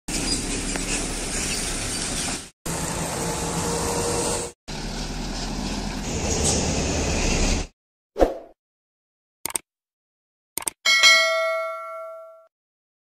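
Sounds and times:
diesel truck engines running: 0.1 - 7.7.

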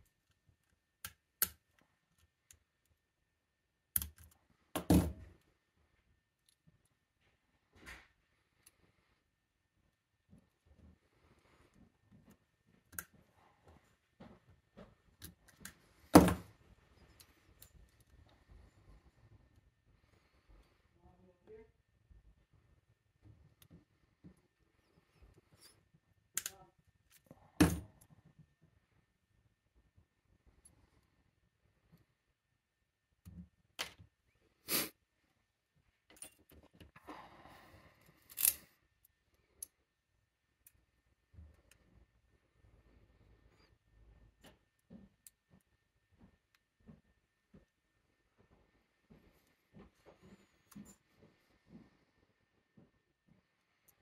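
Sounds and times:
pliers clicking on metal clip: 26.4 - 26.6, 38.3 - 38.7.

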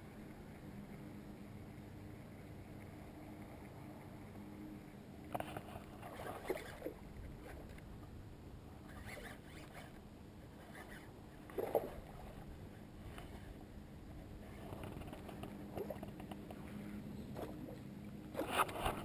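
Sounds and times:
fishing reel being wound: 5.5 - 7.7, 8.9 - 10.0, 10.6 - 12.0.

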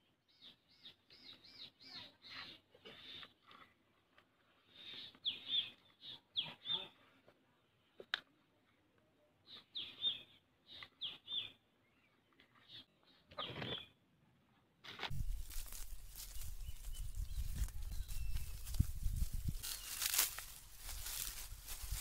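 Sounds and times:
small birds chirping: 0.0 - 14.0, 15.1 - 22.0
handling rustle: 14.9 - 22.0.

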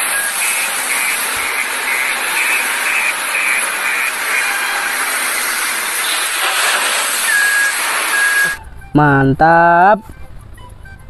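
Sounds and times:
short high beeps: 0.0 - 3.6, 7.1 - 8.7
loader diesel engine roaring: 0.0 - 8.9.

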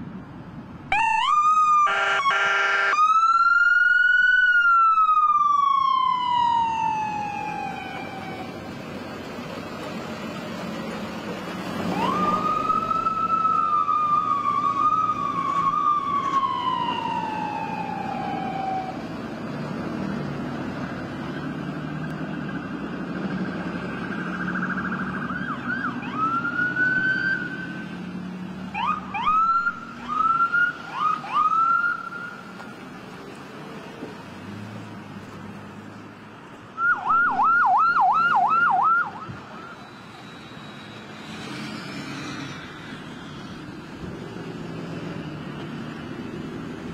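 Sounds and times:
truck engines passing: 0.0 - 46.9
emergency vehicle sirens: 0.1 - 46.9
short rising siren whoops: 0.9 - 8.5, 11.9 - 19.0, 36.8 - 41.0.

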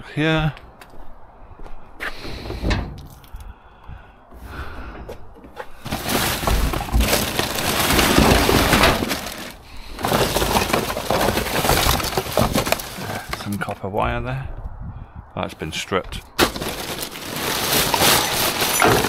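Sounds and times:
rummaging through rubbish in dumpster: 5.6 - 13.9, 16.4 - 19.0.

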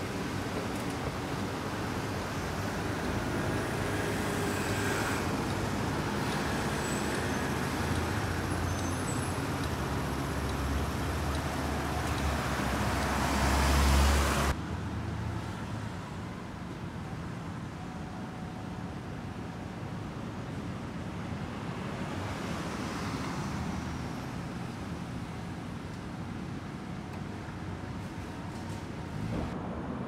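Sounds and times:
cars driving past: 0.0 - 15.3
street hum: 0.0 - 30.0.

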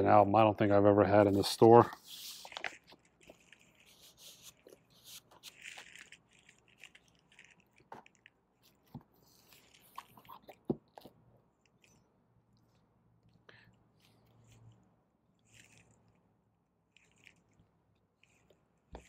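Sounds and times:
paper and cardboard rustling: 1.2 - 10.9.

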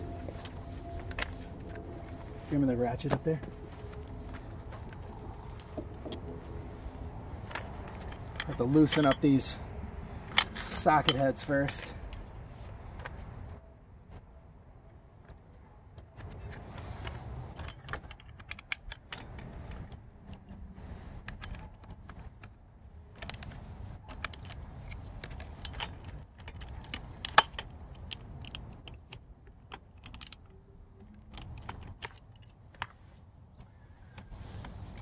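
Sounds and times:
metal hand tools clinking: 7.5 - 9.6.

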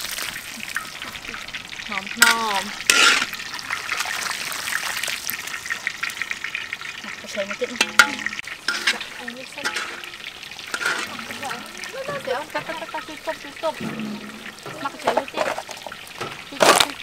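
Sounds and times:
noodles sizzling in hot oil: 0.0 - 17.0
wire skimmer clinking on wok: 0.7 - 3.4, 7.4 - 17.0.

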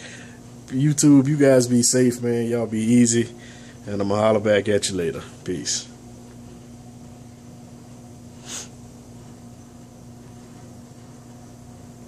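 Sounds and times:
low electrical hum: 0.0 - 12.0
short breathy hiss: 8.3 - 8.8.

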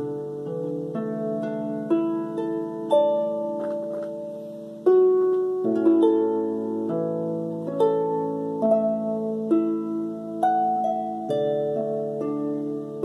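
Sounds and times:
harp plucked melody and chords: 0.0 - 13.0.

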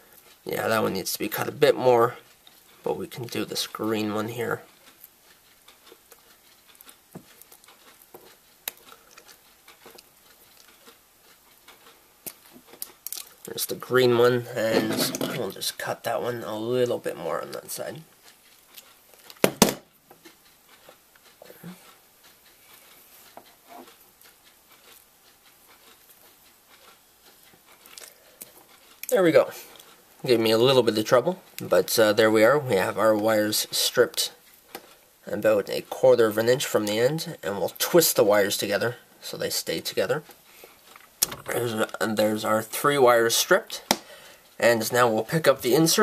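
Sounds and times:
fingers clicking and rustling cable: 2.3 - 14.0.

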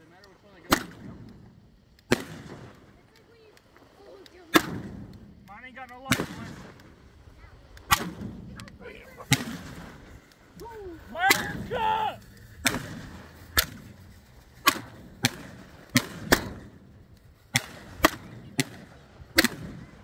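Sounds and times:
fireworks bangs: 0.0 - 20.0
person shouting: 10.6 - 12.3.

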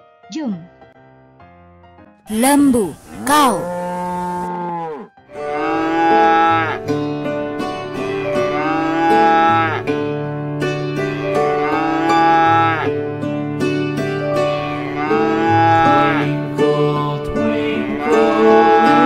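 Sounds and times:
background music: 0.0 - 19.0
cattle mooing: 3.0 - 6.8, 8.5 - 9.9, 11.5 - 12.9, 14.8 - 16.4, 17.8 - 19.0.

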